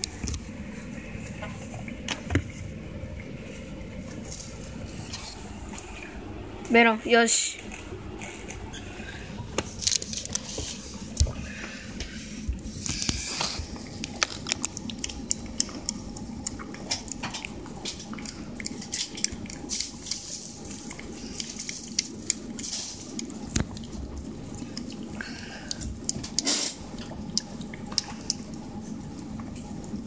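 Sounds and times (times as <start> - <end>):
cat licking wet smacking: 13.8 - 23.9.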